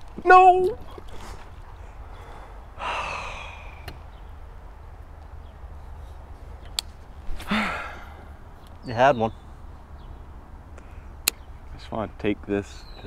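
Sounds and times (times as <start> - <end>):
man sighing: 2.8 - 3.9, 7.4 - 8.3.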